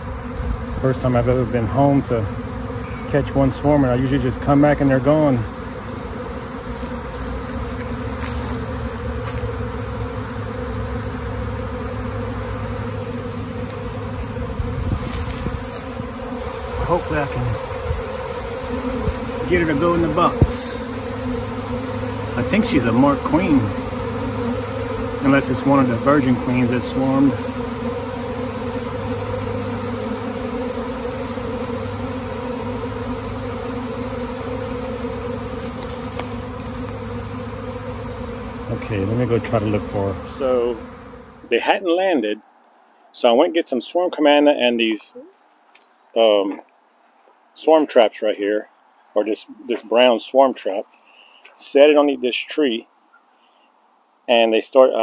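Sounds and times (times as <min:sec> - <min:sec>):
bees humming: 0:00.0 - 0:42.5.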